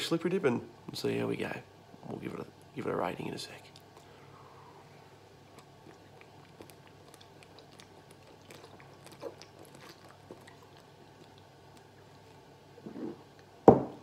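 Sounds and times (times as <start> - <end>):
wet mouth clicks: 5.5 - 11.9.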